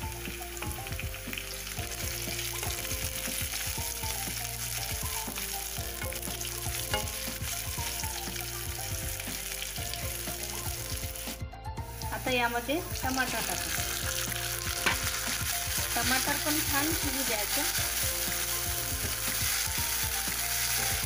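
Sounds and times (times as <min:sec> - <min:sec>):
vegetables sizzling in oil: 0:00.0 - 0:21.0.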